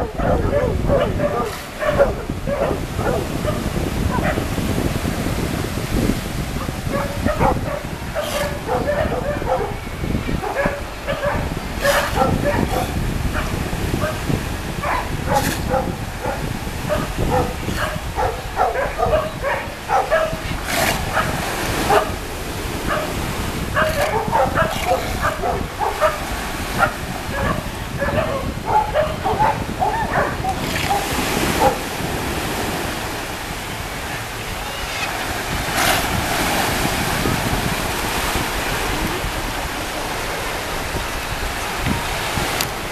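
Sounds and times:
breaking surf: 0.0 - 42.9
dogs and sea lions barking: 0.0 - 42.9
wind rumbling on microphone: 0.0 - 42.9.

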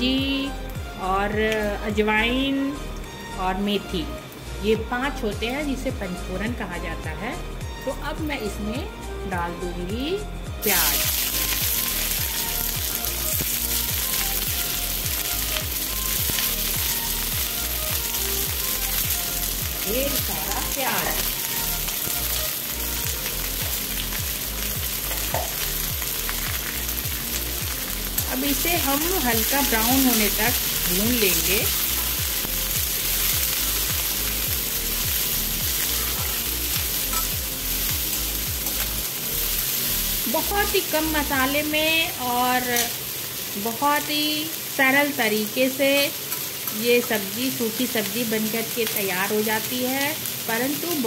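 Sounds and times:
onions sizzling in hot oil: 0.2 - 51.0
faint music beat: 4.7 - 39.0.

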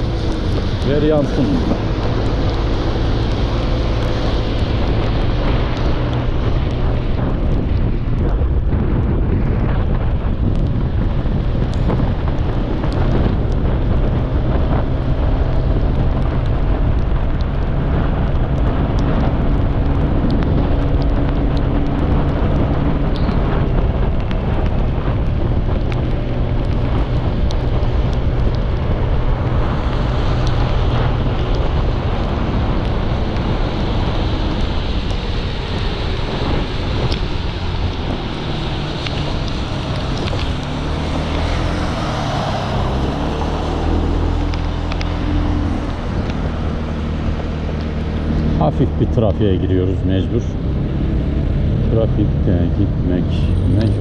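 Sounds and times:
wind buffeting microphone: 0.0 - 54.0
tyres hissing on wet asphalt: 27.2 - 49.8.

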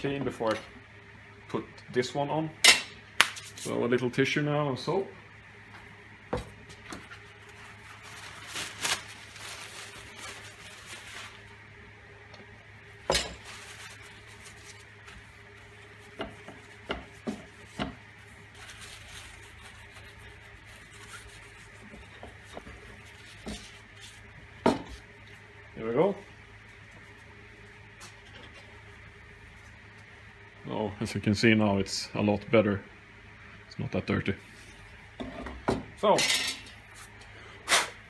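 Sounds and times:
steady low hum: 0.0 - 38.0
tissue rubbing over plate: 7.2 - 11.6, 13.4 - 24.3.

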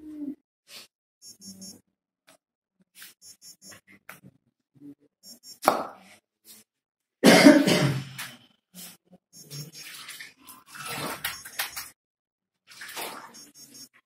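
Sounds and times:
person coughing: 7.2 - 8.2.

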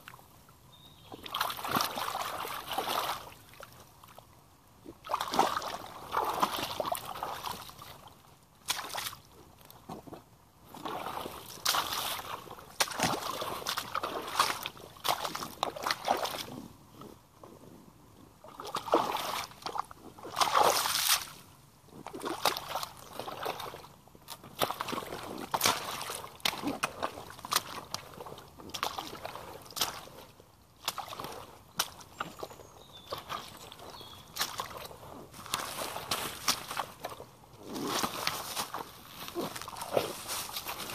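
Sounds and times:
boots splashing through mud: 1.1 - 4.2, 4.9 - 16.6, 18.5 - 40.9.

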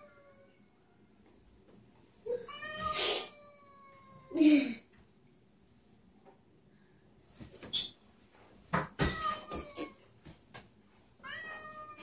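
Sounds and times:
cat yowling and meowing: 0.0 - 0.7, 9.0 - 10.0, 11.2 - 12.0.

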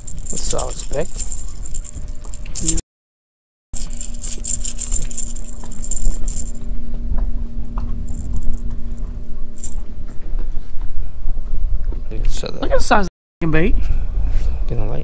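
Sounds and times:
fishing lure rattling: 0.0 - 2.8, 3.8 - 6.7, 8.0 - 9.8
steady low hum: 0.0 - 2.8, 3.8 - 12.1.

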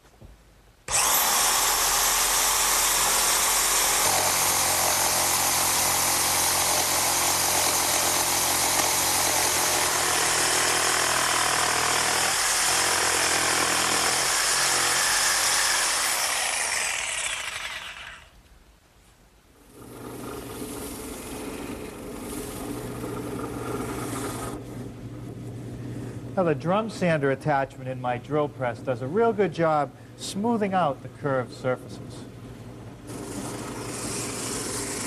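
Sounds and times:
jigsaw cutting wood: 0.9 - 18.4, 19.6 - 24.6, 33.1 - 35.0.

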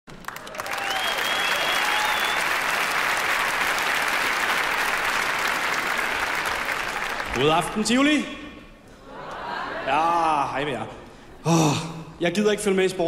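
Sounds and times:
audience applauding: 0.1 - 7.9
high whistle: 0.8 - 2.6.

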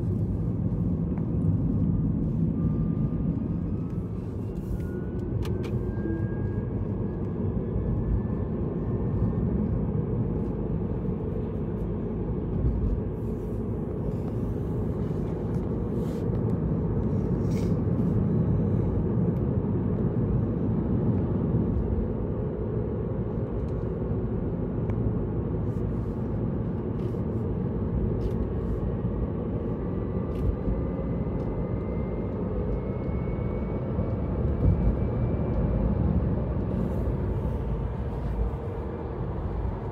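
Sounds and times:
car road and engine rumble: 0.0 - 39.9
faint rising whine: 0.0 - 39.9.

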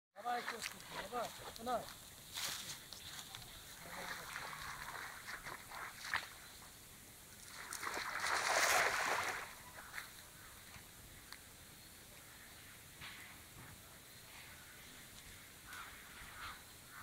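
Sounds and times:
water sloshing around legs: 3.7 - 6.5, 7.4 - 10.2
cast net splashing on water: 3.8 - 6.4, 7.4 - 10.1.

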